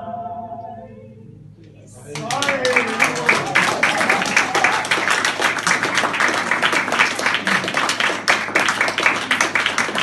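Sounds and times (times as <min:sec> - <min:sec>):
audience applauding: 0:02.1 - 0:10.0.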